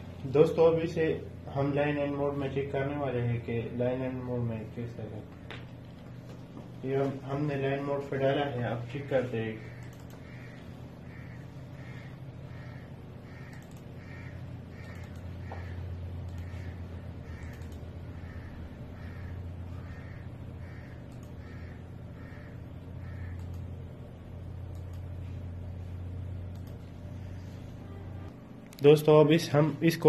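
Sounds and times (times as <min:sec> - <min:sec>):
low electrical hum: 0:00.0 - 0:30.0
crow cawing: 0:09.6 - 0:23.5.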